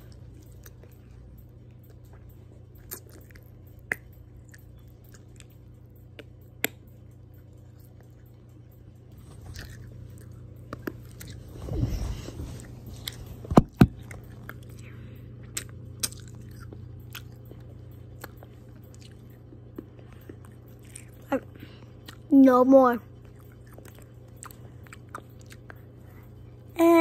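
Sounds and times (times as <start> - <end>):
hard candy crunching: 12.9 - 22.2.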